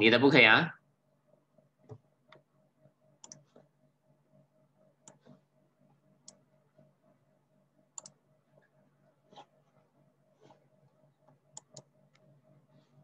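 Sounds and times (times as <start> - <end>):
computer mouse clicks: 3.2 - 3.7, 5.0 - 5.4, 6.2 - 6.4, 8.0 - 8.2, 11.2 - 12.3.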